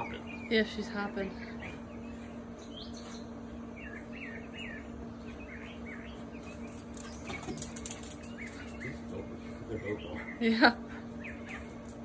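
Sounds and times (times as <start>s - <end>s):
songbird chirping: 0.0s - 10.4s
steady low hum: 0.0s - 12.0s
patter of clicks: 6.4s - 9.2s.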